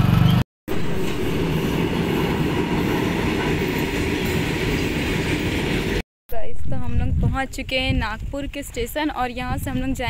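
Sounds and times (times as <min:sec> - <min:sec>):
train rumbling on rails: 0:00.0 - 0:06.0.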